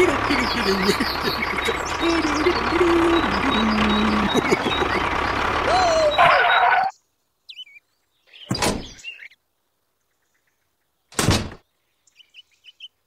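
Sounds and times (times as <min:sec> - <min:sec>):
bird chirps: 0:00.3 - 0:09.4, 0:11.8 - 0:13.0.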